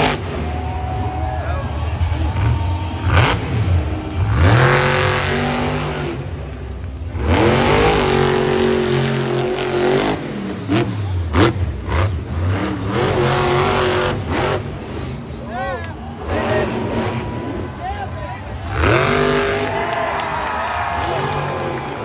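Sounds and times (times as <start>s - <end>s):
truck engine revving hard: 0.0s - 15.4s, 16.2s - 17.7s, 18.4s - 20.2s, 20.8s - 22.0s.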